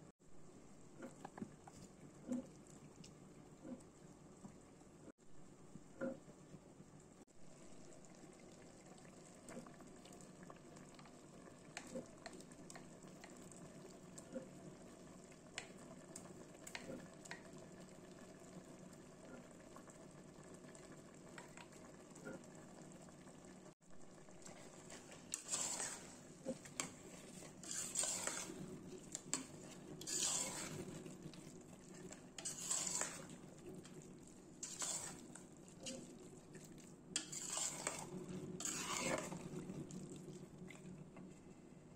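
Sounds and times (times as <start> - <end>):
curry simmering with bubbling pops: 0.6 - 41.6
metal spoon scraping a pot: 24.9 - 31.0, 32.3 - 33.4, 34.6 - 36.1, 37.2 - 39.5.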